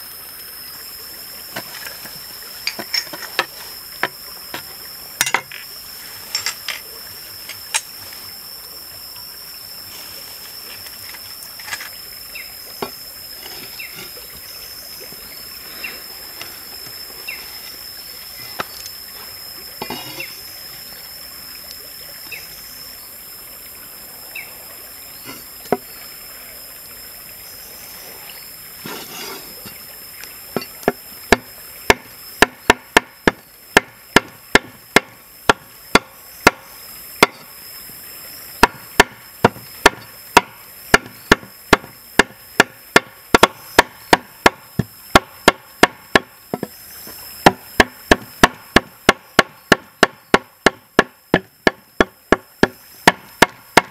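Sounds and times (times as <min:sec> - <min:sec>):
cleaver chopping on board: 0:31.3 - 0:36.6, 0:38.6 - 0:46.7, 0:47.4 - 0:53.9.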